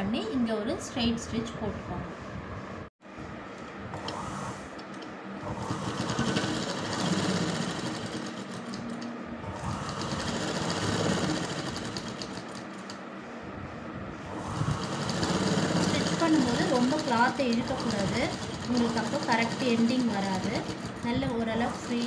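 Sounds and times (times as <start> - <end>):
sewing machine rattling: 5.4 - 13.0, 14.4 - 22.0.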